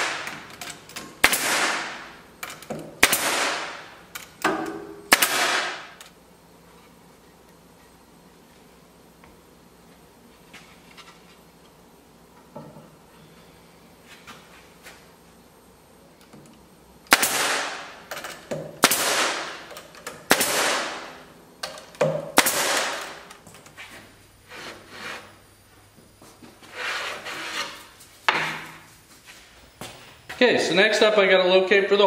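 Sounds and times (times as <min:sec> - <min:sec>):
pneumatic pin nailer firing: 0:00.0 - 0:06.1, 0:17.1 - 0:23.3.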